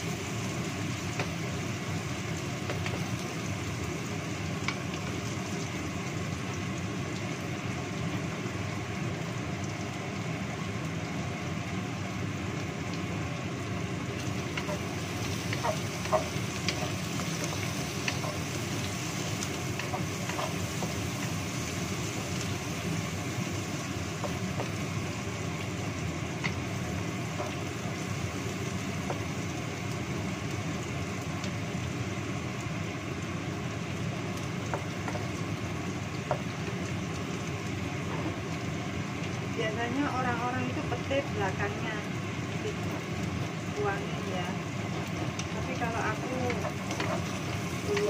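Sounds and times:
food sizzling in a wok: 0:00.0 - 0:48.0
wooden spatula knocking on pan: 0:24.2 - 0:24.9.

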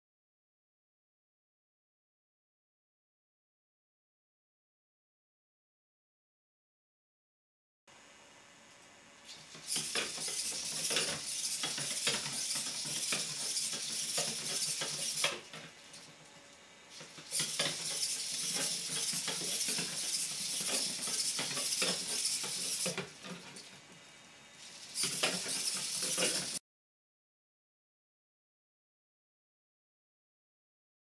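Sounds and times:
high whirring hiss: 0:07.9 - 0:26.6
robot servos clattering: 0:09.3 - 0:16.1, 0:16.9 - 0:23.7, 0:24.7 - 0:26.6.

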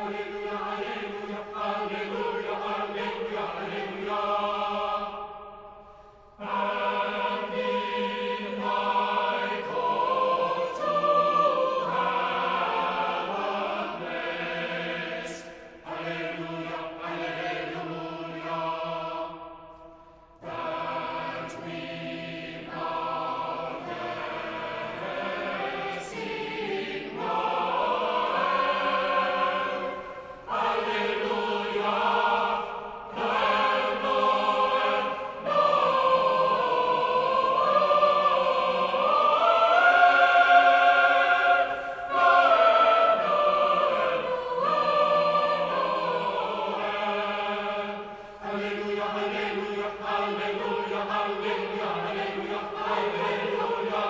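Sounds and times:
choir singing: 0:00.0 - 0:54.0.

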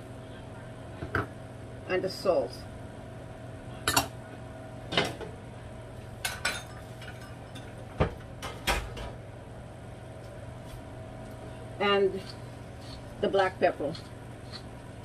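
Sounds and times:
steady low hum: 0:00.0 - 0:15.0
dishes and utensils clinking: 0:06.2 - 0:09.0.

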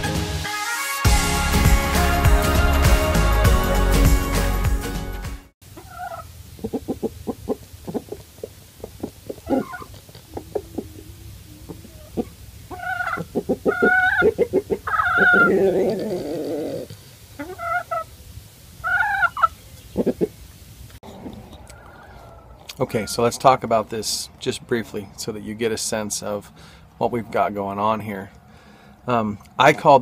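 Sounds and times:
hen calls: 0:05.7 - 0:18.2, 0:18.8 - 0:20.4
chickens clucking: 0:05.7 - 0:23.6.

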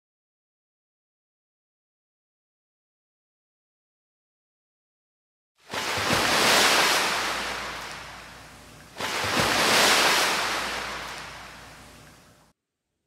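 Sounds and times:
ocean waves surging: 0:05.7 - 0:12.4.

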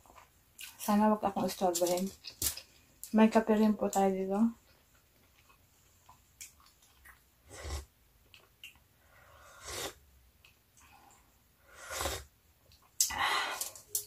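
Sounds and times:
person slurping coffee: 0:07.5 - 0:07.9, 0:09.4 - 0:10.0, 0:11.7 - 0:12.3.

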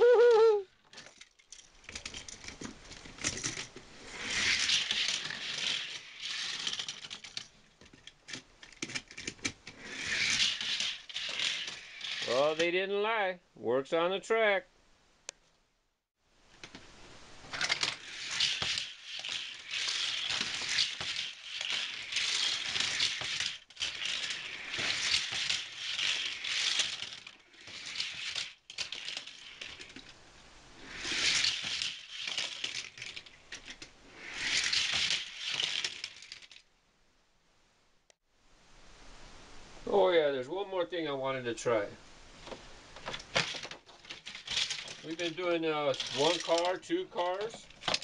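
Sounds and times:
toy cars rattling along plastic track: 0:00.9 - 0:12.8, 0:17.5 - 0:30.2, 0:30.8 - 0:36.6, 0:43.0 - 0:48.0.

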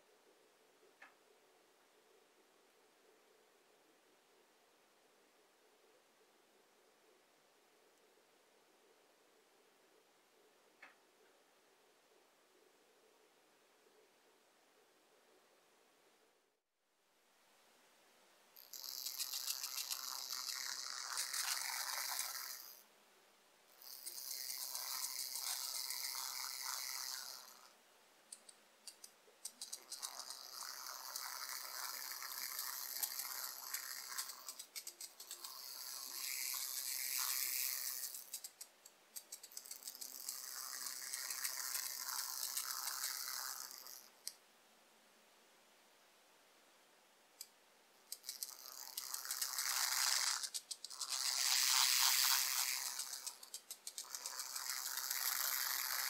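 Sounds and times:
toy car motor whirring: 0:18.6 - 0:22.8, 0:23.8 - 0:27.8, 0:28.4 - 0:44.4, 0:48.1 - 0:56.0.

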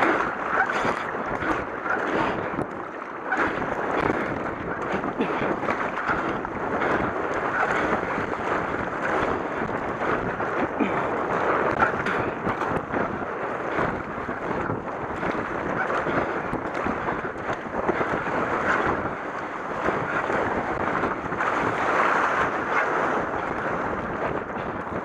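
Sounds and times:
river water rushing and splashing: 0:00.0 - 0:25.0
wind buffeting microphone: 0:00.0 - 0:25.0.

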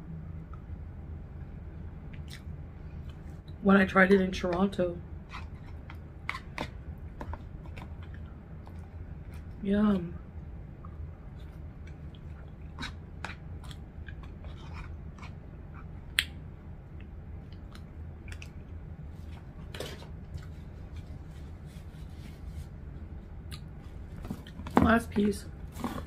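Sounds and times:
chewing and mouth noises: 0:02.1 - 0:03.4, 0:10.8 - 0:16.4, 0:17.0 - 0:18.8, 0:23.5 - 0:23.7.

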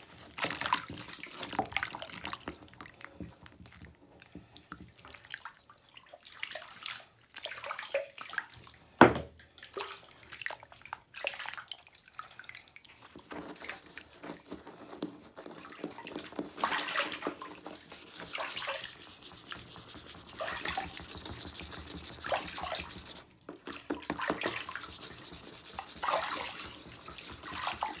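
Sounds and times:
water splashes and drips: 0:00.0 - 0:14.1, 0:15.5 - 0:28.0
wet hands squishing: 0:15.4 - 0:28.0.

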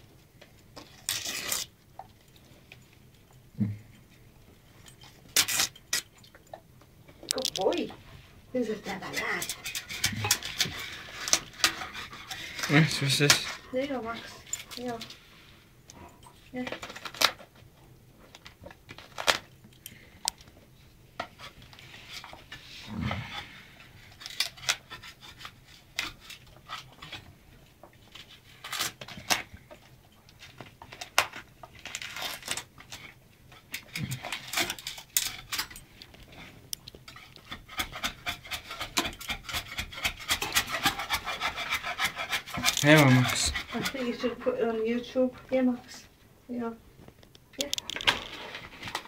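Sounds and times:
dog tearing wallpaper: 0:01.1 - 0:01.7, 0:37.4 - 0:44.3.

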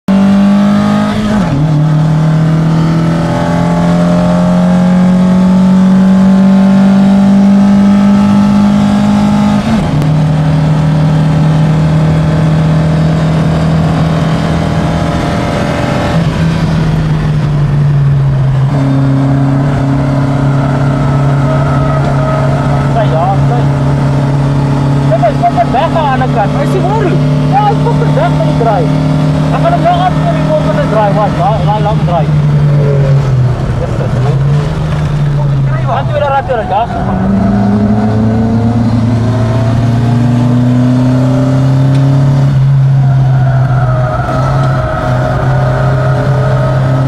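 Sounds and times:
car engine pulling hard: 0:00.1 - 0:47.0.

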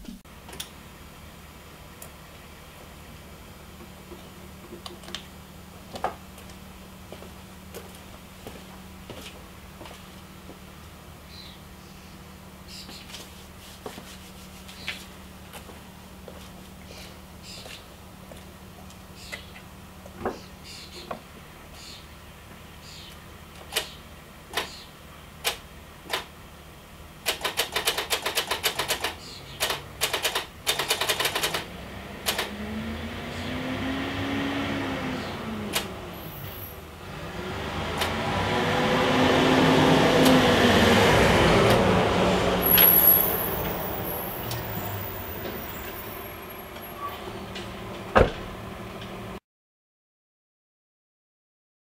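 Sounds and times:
vehicle passing: 0:31.6 - 0:48.9.

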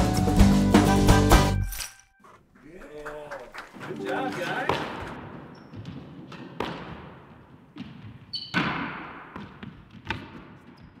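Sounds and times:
shoes squeaking on court floor: 0:04.1 - 0:11.0
squash ball hitting walls: 0:04.7 - 0:11.0.

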